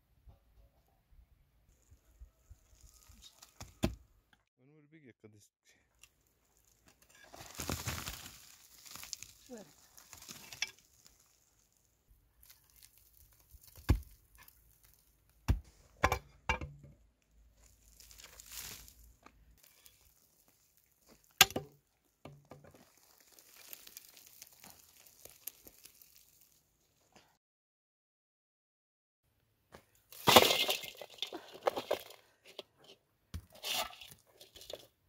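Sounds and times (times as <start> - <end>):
dry soil crumbling: 1.7 - 4.0, 6.0 - 15.9, 17.2 - 27.1, 29.8 - 32.6, 33.4 - 35.0
gritty crackling of loose earth: 1.7 - 4.1, 5.9 - 27.2, 29.8 - 35.0
pickaxe striking earth: 3.5 - 4.0, 13.5 - 14.6, 15.4 - 17.0, 18.0 - 19.0, 21.1 - 22.8, 30.1 - 32.1.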